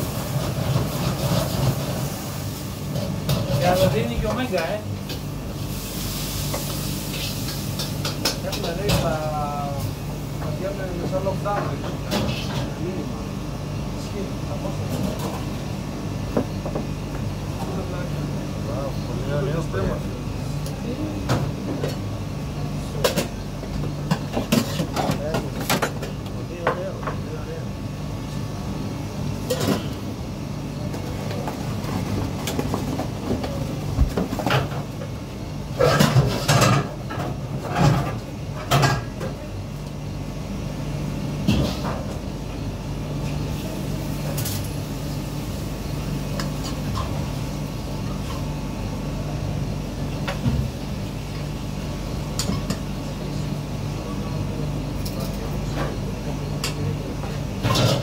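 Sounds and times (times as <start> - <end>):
low machine hum: 0.0 - 58.0.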